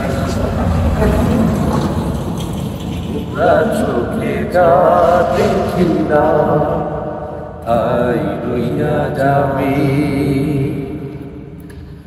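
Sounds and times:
truck rumbling: 0:00.0 - 0:06.8
man singing wordless notes: 0:03.1 - 0:11.4.

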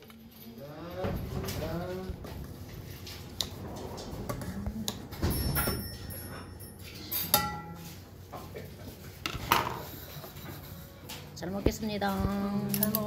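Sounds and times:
ringing metal clink: 0:05.3 - 0:07.8
tableware knocking on wooden table: 0:09.3 - 0:09.8.

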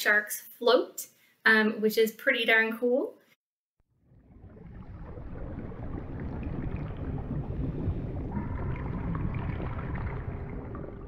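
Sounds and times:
rumbling wash of ocean water: 0:04.0 - 0:11.0.

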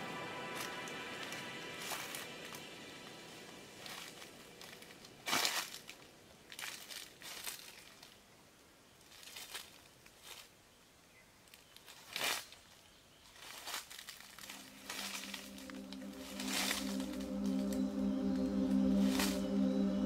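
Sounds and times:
dry rustling and crinkling: 0:03.8 - 0:10.6, 0:11.4 - 0:15.6.

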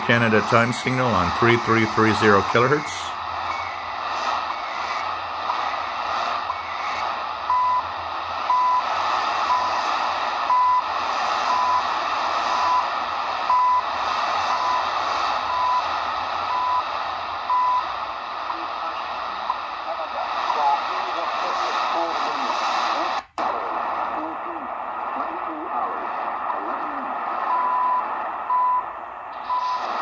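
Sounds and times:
radio static hiss: 0:00.0 - 0:30.0.

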